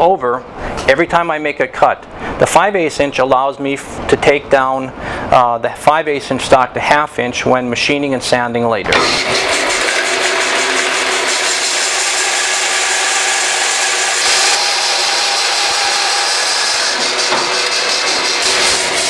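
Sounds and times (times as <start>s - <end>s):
bandsaw cutting wood: 9.0s - 19.0s.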